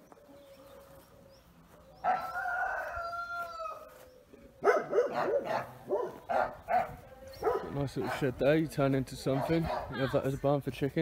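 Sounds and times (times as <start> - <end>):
rooster crowing: 2.0 - 4.0
dog barking: 4.6 - 8.4, 9.3 - 10.0.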